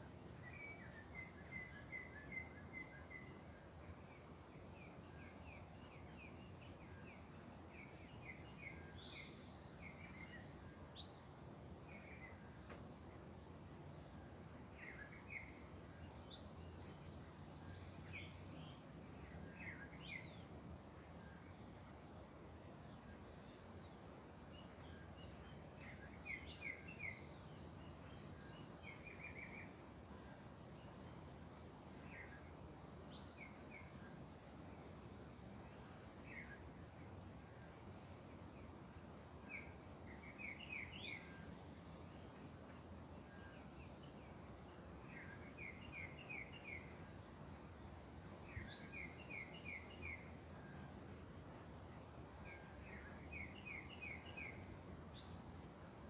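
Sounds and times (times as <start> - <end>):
small birds singing: 0.0 - 56.0.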